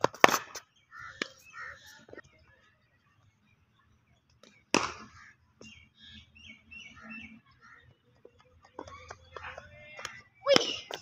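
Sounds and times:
cricket ball striking bat: 0.0s - 0.6s, 4.6s - 5.2s.

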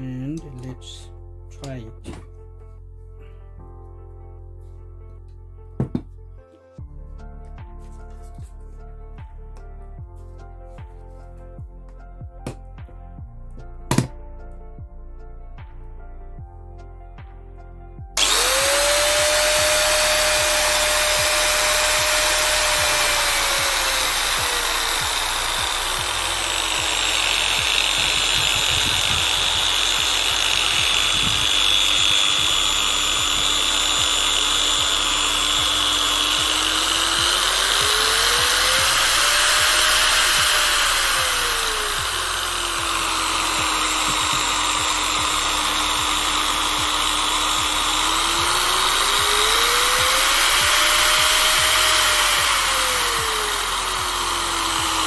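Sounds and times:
angle grinder whining: 18.2s - 55.0s.

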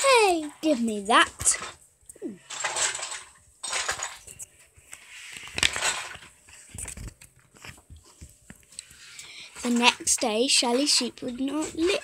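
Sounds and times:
paper pages rustling: 3.7s - 9.1s.

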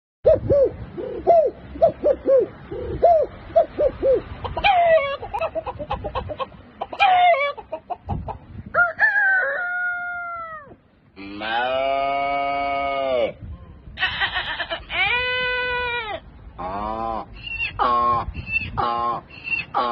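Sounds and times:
man imitating chicken clucks: 0.3s - 8.4s, 9.2s - 19.9s
man imitating rooster crow: 8.8s - 13.4s.

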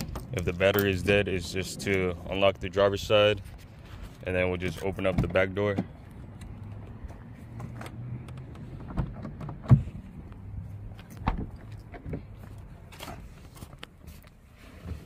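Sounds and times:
car door latch clicks and clunks: 11.0s - 12.3s.

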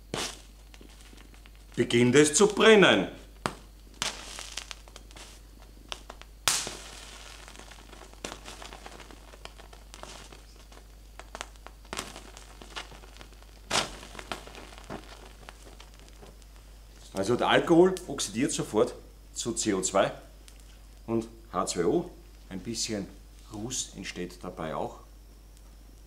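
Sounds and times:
sharp pops of igniting alcohol: 0.0s - 17.2s, 20.3s - 21.1s
low hiss: 0.0s - 26.0s
small crackles: 0.0s - 26.0s.

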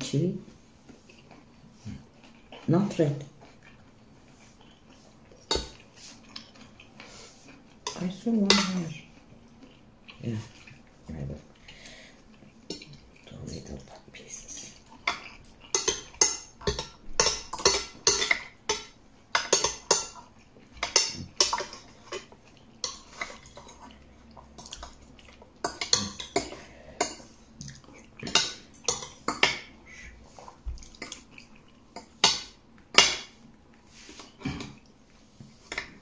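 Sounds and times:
cutlery clinking against a plate: 5.4s - 5.8s, 15.0s - 24.0s, 24.6s - 27.3s, 28.2s - 29.7s, 31.0s - 33.4s.

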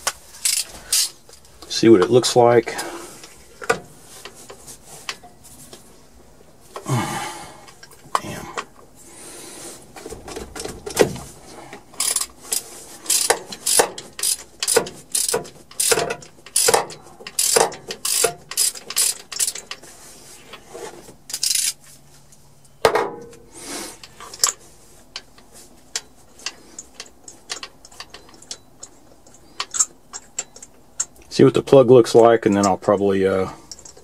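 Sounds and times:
socket ratchet clicking: 12.0s - 19.8s.

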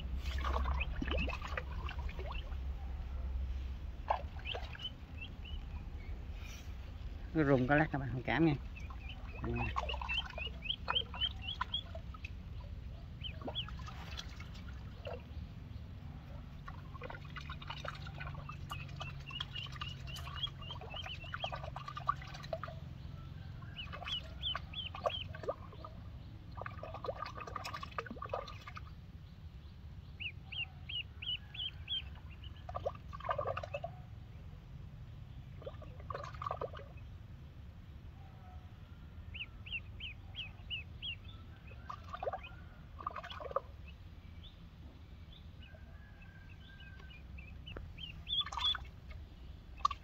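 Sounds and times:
lower-pitched calls: 0.0s - 13.9s, 43.5s - 50.0s
duckling peeping: 0.0s - 34.2s, 38.3s - 50.0s
steady low hum: 0.0s - 50.0s.

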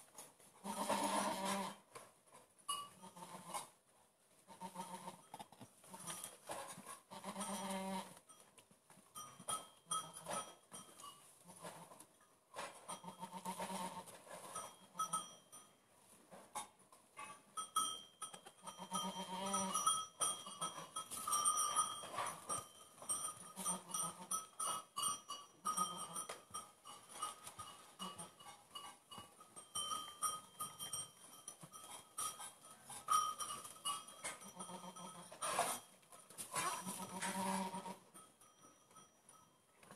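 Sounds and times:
goats bleating softly: 0.6s - 1.8s, 3.0s - 3.7s, 4.5s - 5.3s, 7.1s - 8.2s, 12.9s - 14.1s, 18.6s - 19.8s, 34.3s - 35.8s, 36.5s - 38.0s.

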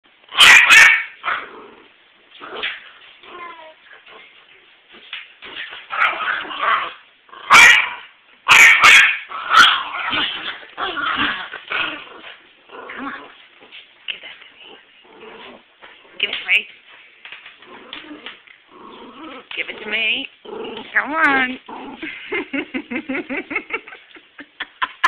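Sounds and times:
dog yipping and barking: 0.4s - 1.4s, 7.5s - 10.2s.

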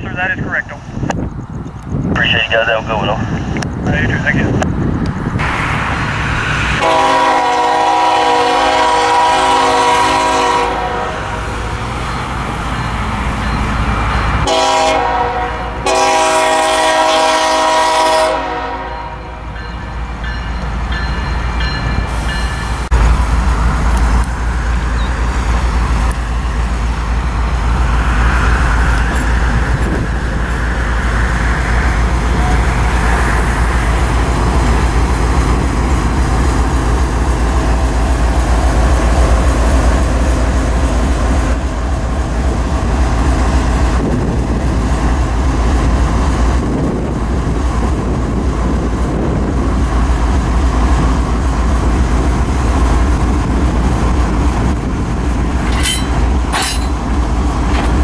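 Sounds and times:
diesel engine rumbling: 0.0s - 58.0s
locomotive air horn blasts: 6.8s - 11.2s, 14.4s - 19.4s.

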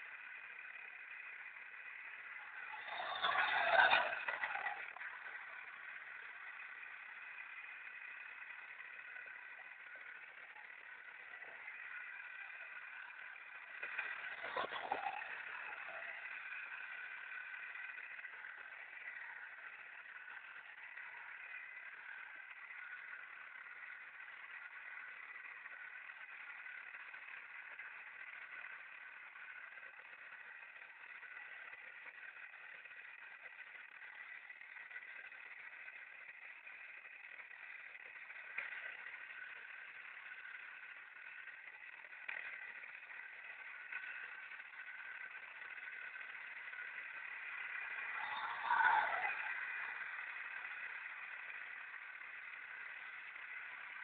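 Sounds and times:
small electric motor whining: 0.0s - 54.0s.

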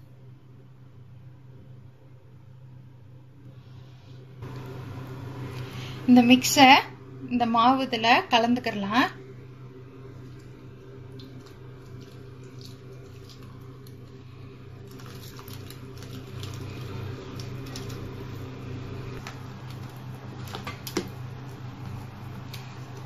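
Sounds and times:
low hum: 0.0s - 23.0s
batter stirring and scraping: 10.0s - 23.0s.

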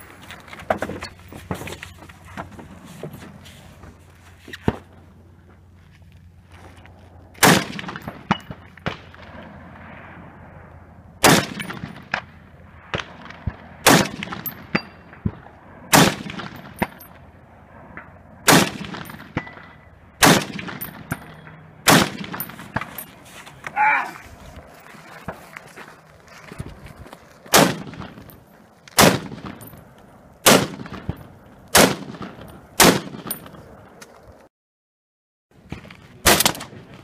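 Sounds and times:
loud rifle shots: 7.4s - 9.6s, 11.2s - 12.3s, 12.9s - 17.0s, 18.4s - 22.9s, 27.5s - 28.2s, 29.0s - 29.6s, 30.4s - 33.3s, 36.2s - 36.7s.

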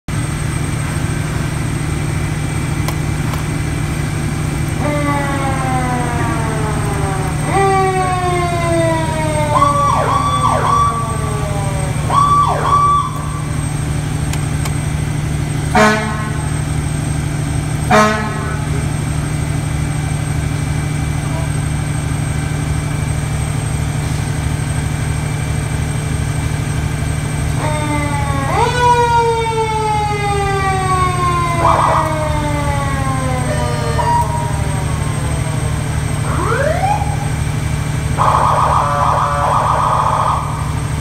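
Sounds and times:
diesel engine idling: 0.1s - 41.0s
mechanical siren winding down: 0.5s - 17.1s, 26.2s - 41.0s
electronic siren tone: 4.5s - 17.2s, 27.3s - 41.0s
air horn blasts: 15.7s - 16.5s, 17.9s - 18.8s.

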